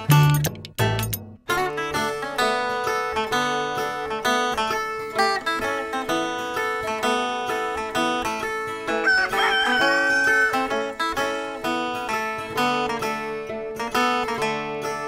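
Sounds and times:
picked acoustic guitar music: 0:00.0 - 0:15.0
rooster crowing: 0:09.0 - 0:10.9.

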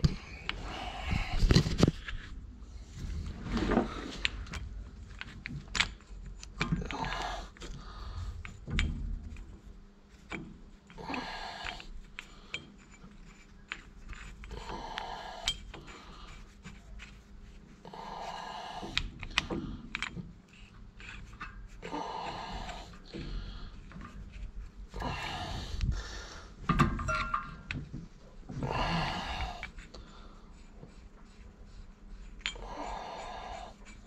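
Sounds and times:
person breathing loudly: 0:00.2 - 0:01.7, 0:06.8 - 0:08.6, 0:11.0 - 0:12.7, 0:14.5 - 0:16.5, 0:17.8 - 0:19.9, 0:21.8 - 0:23.9, 0:24.9 - 0:26.6, 0:28.6 - 0:30.6, 0:32.6 - 0:33.9
metal tools clicking and clinking: 0:26.9 - 0:27.8.

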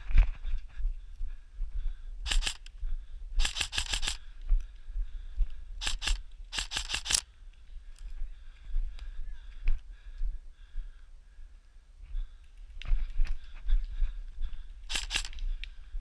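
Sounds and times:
airsoft rifle firing bursts: 0:02.3 - 0:02.7, 0:03.4 - 0:04.2, 0:05.8 - 0:07.2, 0:14.9 - 0:15.4.

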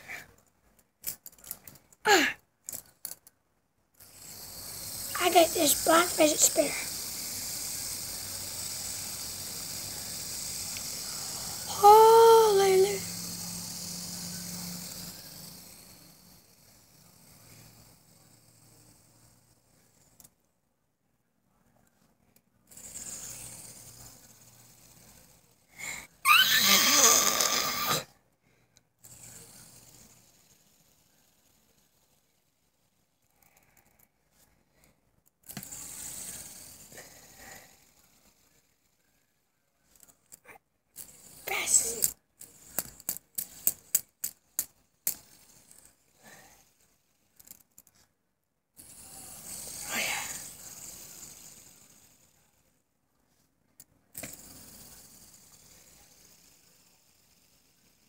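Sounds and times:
small object clicking and rattling: 0:00.2 - 0:03.4, 0:04.0 - 0:20.4, 0:28.7 - 0:34.2, 0:34.8 - 0:48.1, 0:48.8 - 0:52.6, 0:53.7 - 0:58.0
boy making raspy mouth noises: 0:02.1 - 0:02.4, 0:11.7 - 0:13.1, 0:25.8 - 0:28.1, 0:41.5 - 0:42.1, 0:49.8 - 0:50.5
boy squealing: 0:26.2 - 0:28.0.

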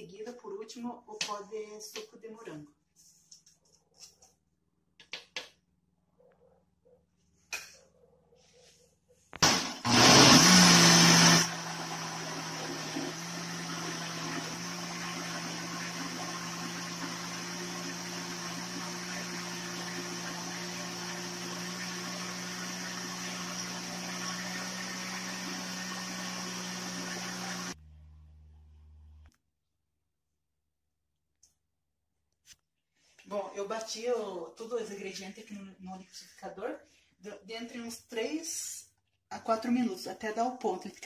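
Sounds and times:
blender motor running: 0:09.4 - 0:29.0.

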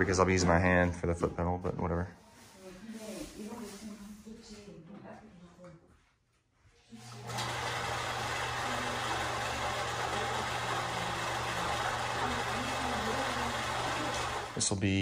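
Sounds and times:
electric sewing machine running: 0:07.0 - 0:14.8.

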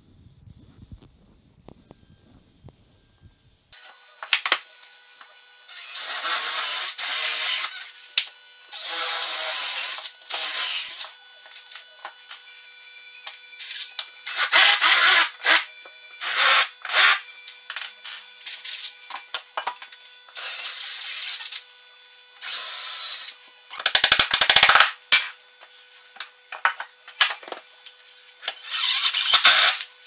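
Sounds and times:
cordless drill whining: 0:03.8 - 0:27.3, 0:27.9 - 0:30.0.

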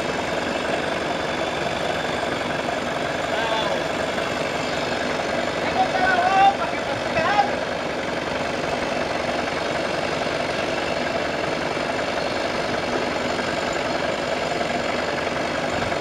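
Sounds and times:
chainsaw engine running: 0:00.0 - 0:16.0.

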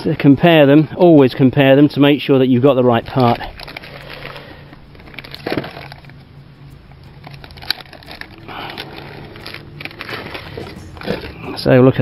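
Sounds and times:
plastic bag crinkling: 0:02.8 - 0:12.0
cardboard box rustling: 0:05.0 - 0:06.2, 0:07.2 - 0:11.7.

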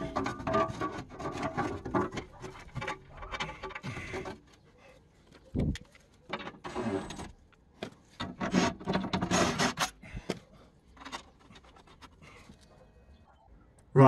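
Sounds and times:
metal plate rubbing and scraping: 0:00.0 - 0:04.4, 0:06.3 - 0:07.4, 0:08.2 - 0:10.0.

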